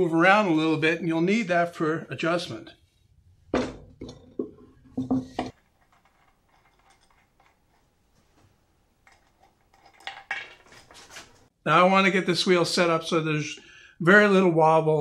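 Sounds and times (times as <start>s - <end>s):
wooden wheel knocking on bench: 3.5s - 5.5s.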